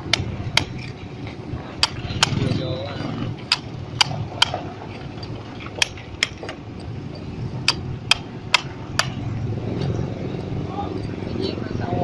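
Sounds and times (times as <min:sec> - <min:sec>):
hammer striking chisel: 0:01.8 - 0:02.4, 0:03.4 - 0:04.6, 0:07.1 - 0:09.2.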